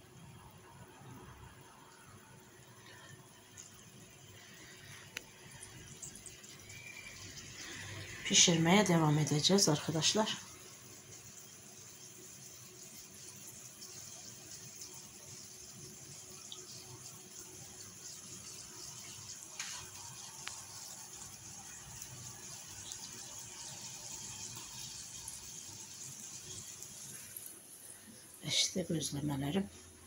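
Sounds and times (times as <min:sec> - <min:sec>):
food hissing in a pan: 0:02.6 - 0:09.0, 0:13.4 - 0:28.4.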